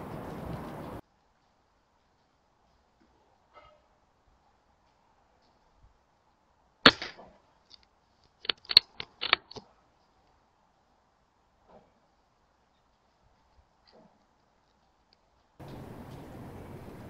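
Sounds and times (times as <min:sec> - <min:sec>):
air rifle shot: 0:06.9 - 0:07.2
sharp clicks: 0:06.9 - 0:09.6.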